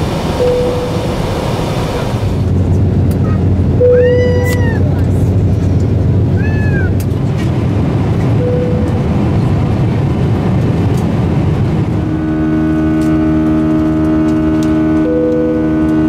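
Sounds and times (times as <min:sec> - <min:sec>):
airliner cabin noise: 0:00.0 - 0:16.0
steady droning hum: 0:00.0 - 0:16.0
electronic seatbelt chimes: 0:00.4 - 0:01.1, 0:15.0 - 0:16.0.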